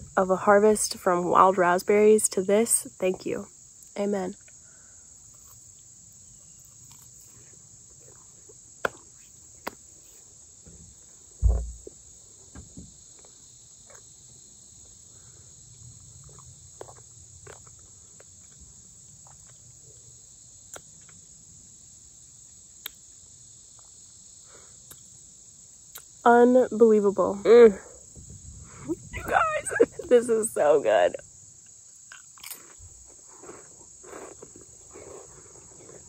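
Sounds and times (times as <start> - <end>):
crickets and insects chirping: 0.0 - 36.0
low thump: 10.7 - 11.9
small chewing clicks: 15.8 - 20.1.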